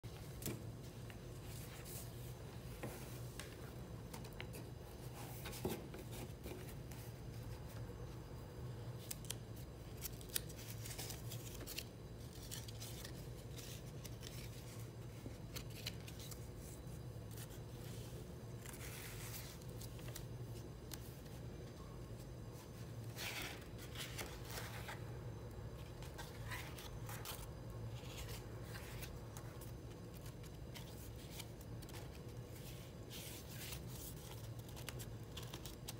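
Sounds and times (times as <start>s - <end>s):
faint low hum: 0.0s - 35.9s
paper pages rustling: 9.0s - 35.9s.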